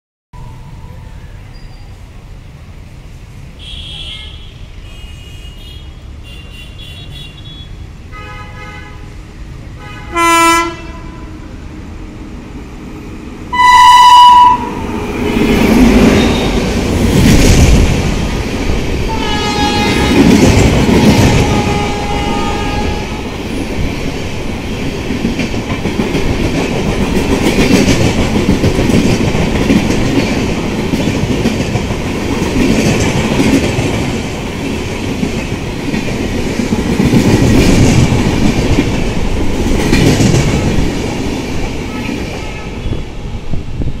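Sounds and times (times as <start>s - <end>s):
locomotive horn: 3.6s - 9.1s, 9.8s - 11.4s, 13.5s - 15.0s, 19.1s - 23.2s
train rumble with wheel clatter: 5.6s - 44.0s.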